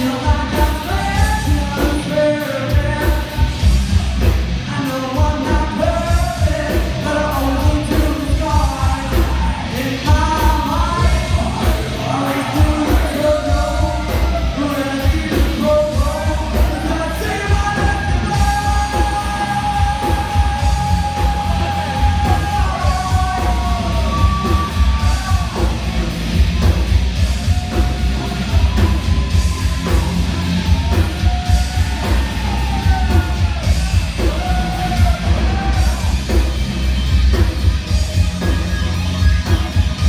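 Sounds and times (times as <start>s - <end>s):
live rock band playing: 0.0s - 40.0s
singer holding notes and yelling: 4.6s - 26.2s, 27.1s - 36.3s.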